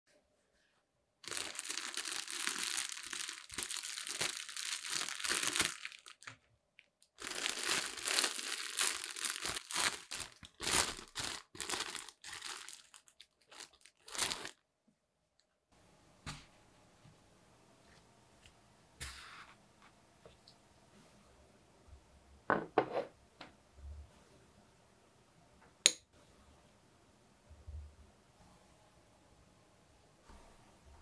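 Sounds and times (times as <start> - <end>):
plastic bread bag crinkling: 1.2 - 14.6.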